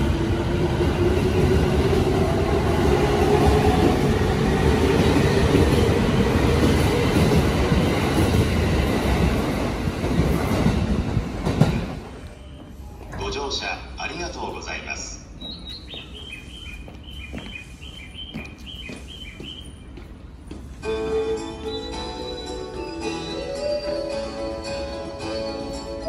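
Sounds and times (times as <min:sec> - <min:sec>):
train wheels rumbling and clattering: 0:00.0 - 0:14.4, 0:15.3 - 0:22.8.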